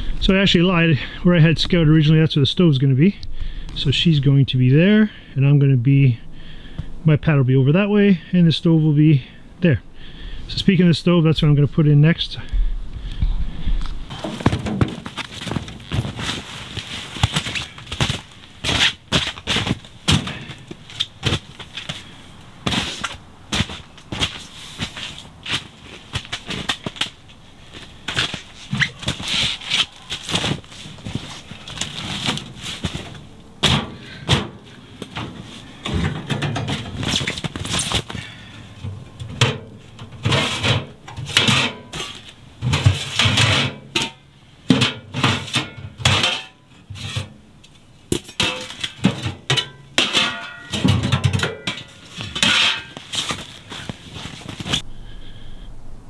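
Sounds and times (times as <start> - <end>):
metal stove clanks and knocks: 33.6 - 37.0, 48.2 - 53.0.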